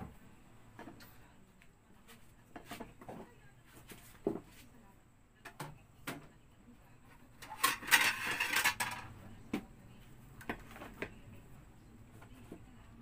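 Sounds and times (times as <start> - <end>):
dishes clattering: 7.4 - 9.1.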